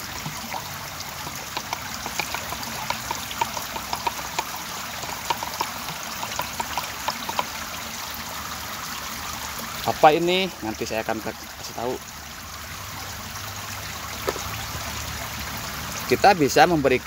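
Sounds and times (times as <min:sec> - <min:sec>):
running water trickle: 0:00.0 - 0:17.0
stick stirring thick liquid: 0:00.2 - 0:07.8
stick clicking against plastic jug: 0:01.2 - 0:07.6.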